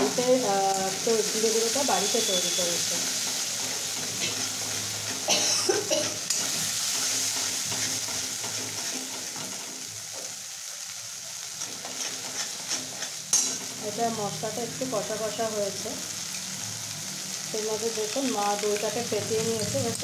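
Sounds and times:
paste sizzling in oil: 0.0s - 20.0s
steel spatula scraping pan: 2.0s - 9.8s, 11.6s - 13.8s.

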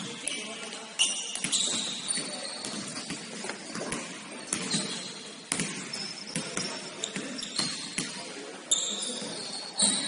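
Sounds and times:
sneaker squeaks: 0.0s - 10.0s
footfalls on indoor court: 1.2s - 10.0s
basketball bouncing: 1.4s - 8.2s.

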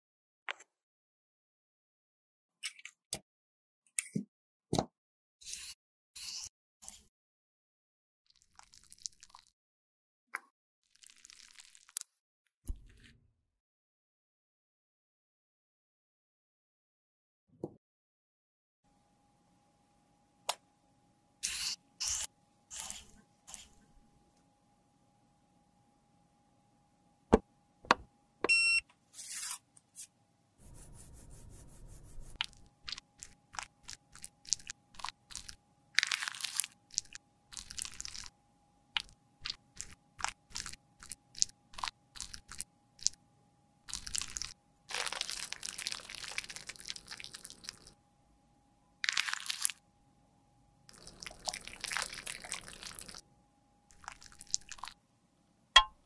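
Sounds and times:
crackly crunching: 43.9s - 47.9s.

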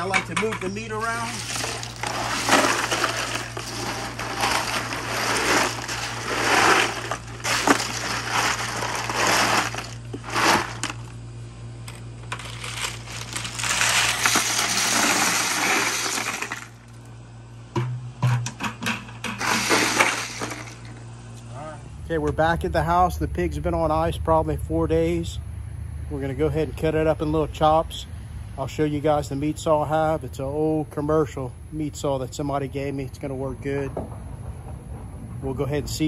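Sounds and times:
ice crunching and rattling in cooler: 0.0s - 11.2s, 11.9s - 17.0s, 18.9s - 21.0s.

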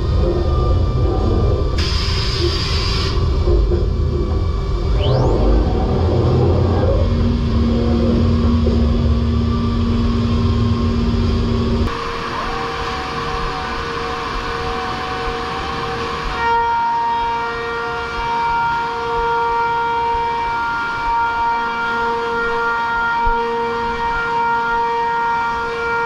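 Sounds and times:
heavy low machine rumble: 0.0s - 16.4s
cnc router whining: 0.0s - 26.0s.

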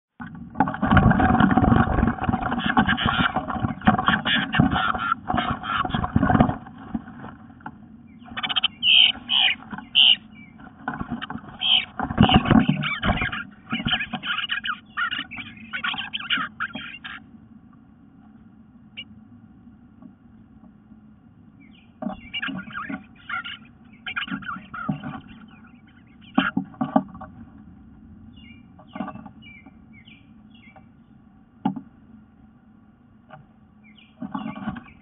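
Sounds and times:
harsh scratchy bird calls: 0.7s - 7.3s, 8.1s - 17.3s, 21.6s - 27.4s, 28.3s - 31.1s, 33.8s - 35.0s.

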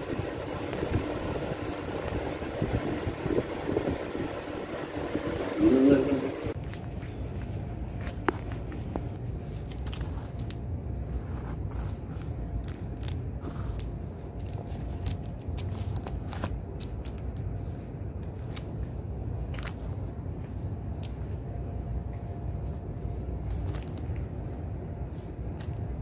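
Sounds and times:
steady low rumble: 0.0s - 26.0s
plastic packaging clicks and crackles: 9.5s - 10.6s, 12.6s - 17.5s.

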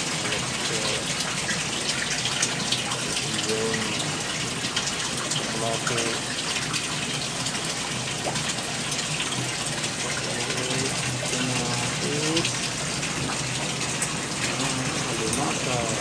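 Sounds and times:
water running and splashing: 0.0s - 16.0s
faint voices: 14.5s - 16.0s.

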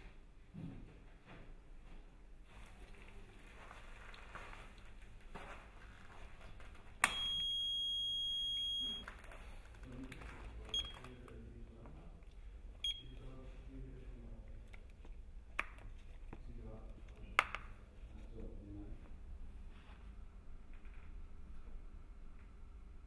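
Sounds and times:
cable tester beeping: 7.0s - 9.1s, 10.7s - 11.2s, 12.8s - 13.2s.

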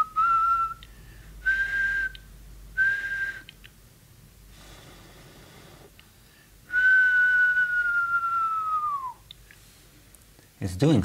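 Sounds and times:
person whistling: 0.0s - 3.6s, 6.7s - 9.3s.

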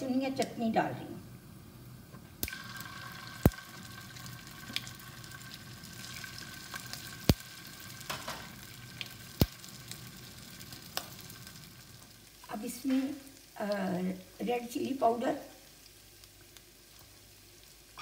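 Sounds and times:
oil sizzling: 1.4s - 18.0s
sharp pops in oil: 3.4s - 3.6s.

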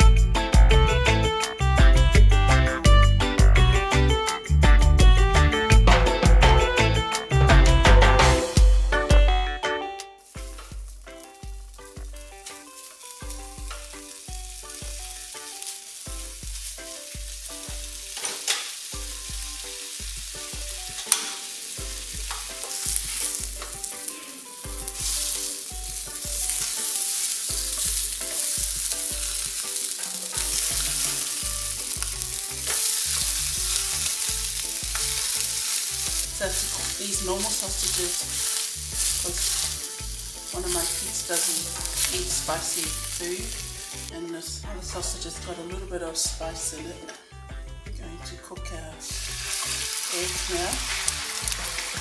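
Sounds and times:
sausages sizzling in frying pan: 0.0s - 9.2s, 10.2s - 47.0s, 49.0s - 52.0s
background music with bass beat: 0.0s - 12.4s
utensil clicks on pan: 18.2s - 18.8s, 20.9s - 21.6s.

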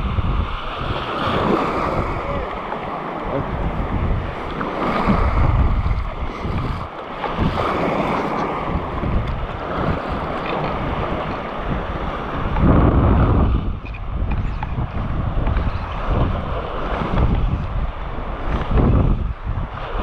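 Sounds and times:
small waves lapping: 0.0s - 12.6s
wind gusting on microphone: 0.0s - 20.0s.

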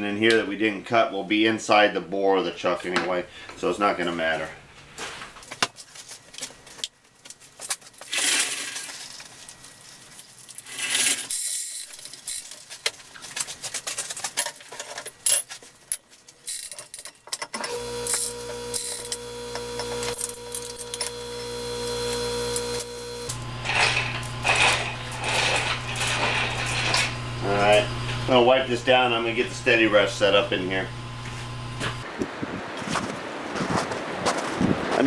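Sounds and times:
steel chains clinking and rattling: 13.6s - 19.1s, 23.6s - 27.8s
hoist motor humming: 17.6s - 32.0s.

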